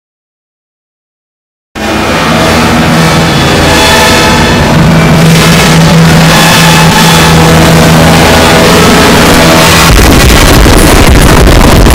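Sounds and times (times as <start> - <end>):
dense rough low noise: 1.8 - 11.9
loud music with held tones: 2.5 - 11.9.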